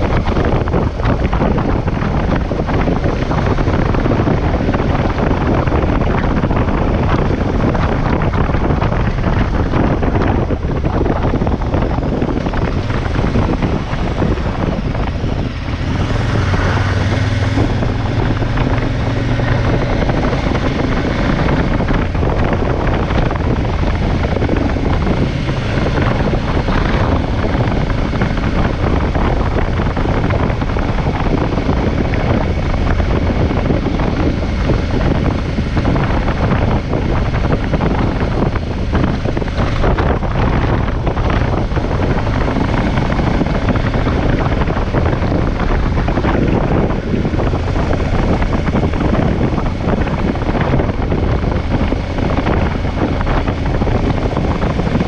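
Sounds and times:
motorcycle engine running: 0.0 - 55.0
wind rush on microphone: 0.0 - 55.0.

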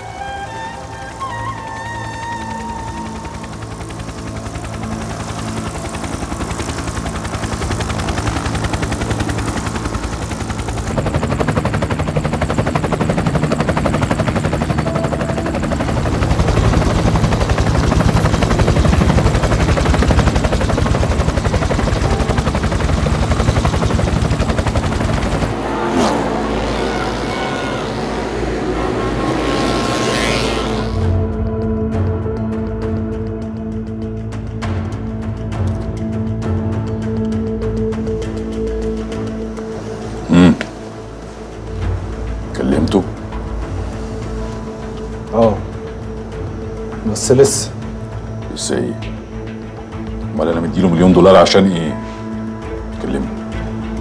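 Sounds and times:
helicopter rotor chopping: 0.0 - 31.3
motorcycle engine revving: 16.1 - 31.4.

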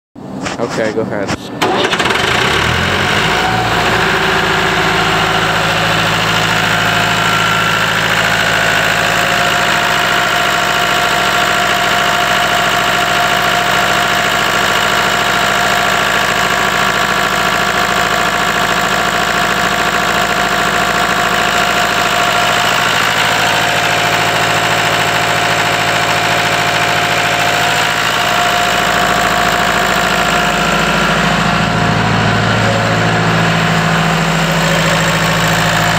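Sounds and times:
diesel engine starting and running: 0.2 - 35.9.

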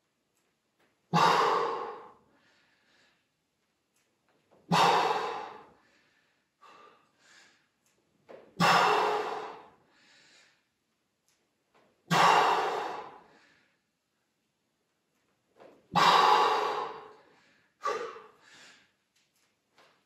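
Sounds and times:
person exhaling forcefully: 1.1 - 2.2, 4.7 - 5.7, 8.6 - 10.2, 12.1 - 13.5, 15.9 - 17.2, 17.8 - 18.8
person inhaling: 4.8 - 7.7, 16.0 - 18.9.

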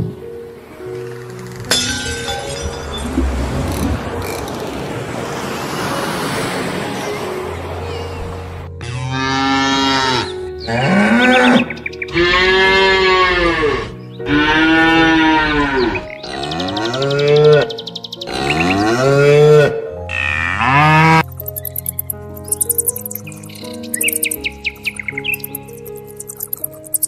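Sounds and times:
background music: 0.0 - 27.0
cow mooing: 8.8 - 17.7, 18.3 - 21.2
high bird chirps: 21.3 - 27.0.

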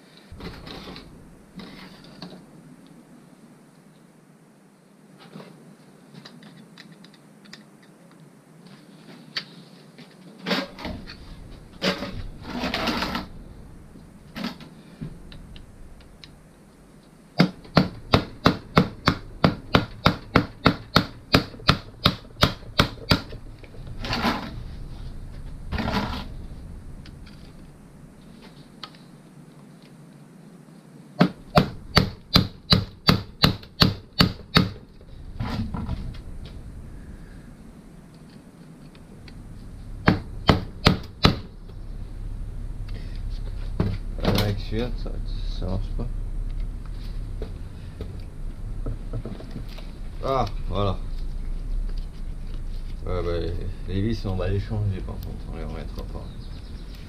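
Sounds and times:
scrapes and knocks: 0.3 - 2.4, 10.4 - 13.4, 22.5 - 28.9, 35.0 - 36.7.

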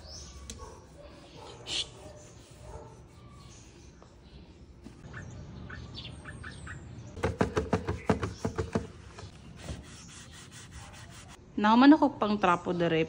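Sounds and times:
bird chirps: 3.2 - 10.5.

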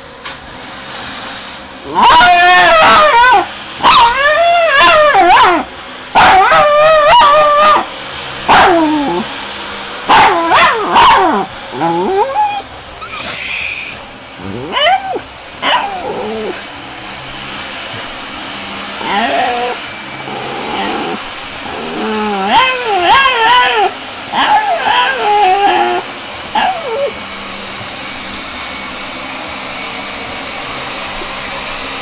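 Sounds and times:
dog barking and yelping: 1.9 - 7.9, 8.5 - 9.3, 10.1 - 12.7, 14.4 - 16.7, 19.0 - 27.2.

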